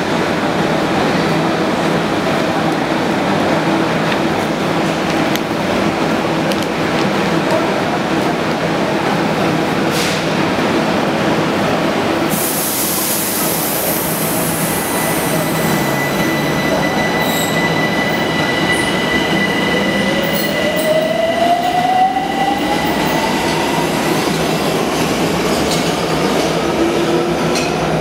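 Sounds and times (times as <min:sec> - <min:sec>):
metro train whine: 0:00.0 - 0:28.0
train cars running noise: 0:00.0 - 0:28.0.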